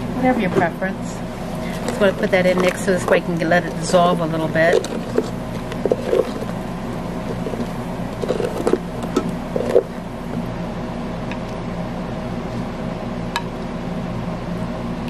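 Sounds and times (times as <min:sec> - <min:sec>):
steady low hum: 0:00.0 - 0:15.0
spatula stirring liquid in pot: 0:01.4 - 0:10.4
spatula scraping and knocking pot: 0:01.6 - 0:10.0.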